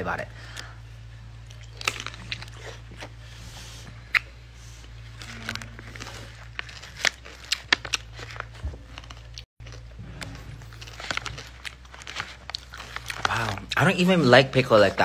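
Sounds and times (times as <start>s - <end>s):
steady low hum: 0.0s - 15.0s
chewing pickle: 1.4s - 3.2s, 4.0s - 14.7s
plastic pouch crinkling: 5.0s - 9.9s, 10.6s - 15.0s.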